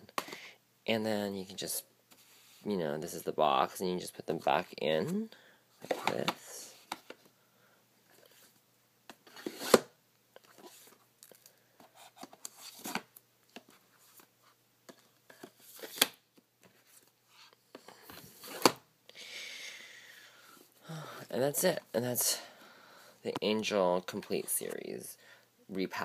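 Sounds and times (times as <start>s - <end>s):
plastic cases scraping and rustling: 5.8s - 7.2s, 8.0s - 18.8s.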